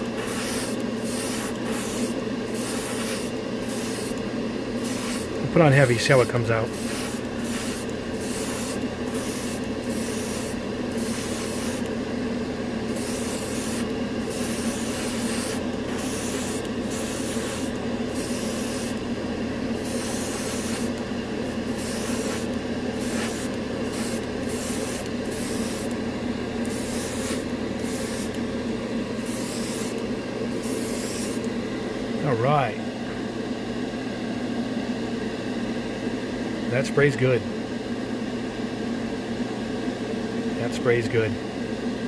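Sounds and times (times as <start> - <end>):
airbrush spraying air hiss: 0.0 - 11.9, 12.9 - 19.0, 19.8 - 26.0, 26.6 - 28.4, 29.2 - 31.5
steady motor hum: 0.0 - 42.0.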